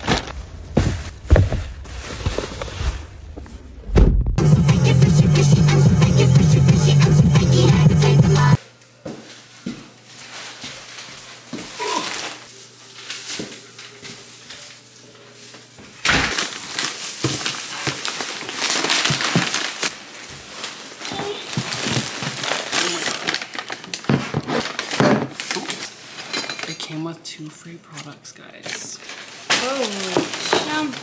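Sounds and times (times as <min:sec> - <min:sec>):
shopping bags rustling: 0:00.0 - 0:03.6, 0:10.0 - 0:26.8, 0:28.6 - 0:31.0.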